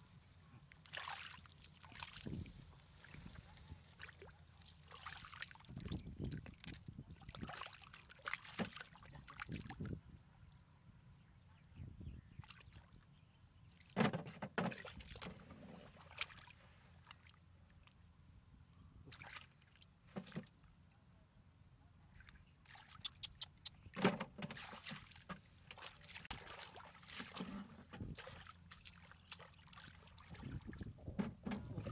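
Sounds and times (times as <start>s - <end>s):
hands splashing in muddy water: 0.8s - 9.9s, 19.1s - 20.4s, 24.5s - 30.7s.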